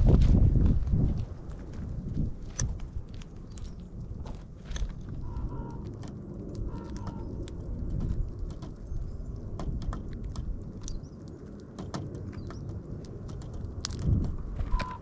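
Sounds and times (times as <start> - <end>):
steady low rumble: 0.0 - 15.0
birds pecking seed: 2.0 - 15.0.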